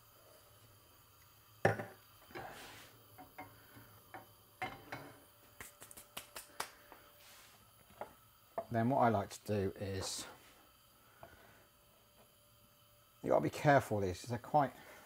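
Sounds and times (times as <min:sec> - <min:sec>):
light hand claps: 0:05.6 - 0:06.8.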